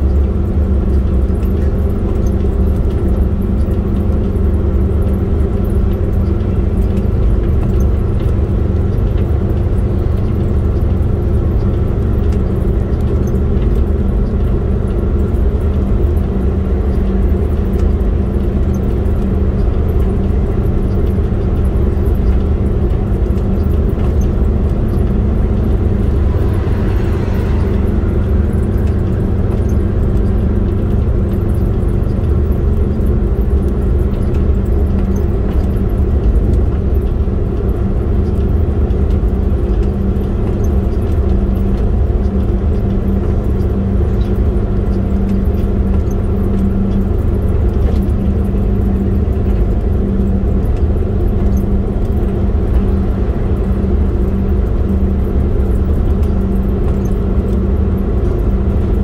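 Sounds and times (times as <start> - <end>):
road rumble: 0.0 - 59.0
vehicle engine hum: 0.0 - 59.0.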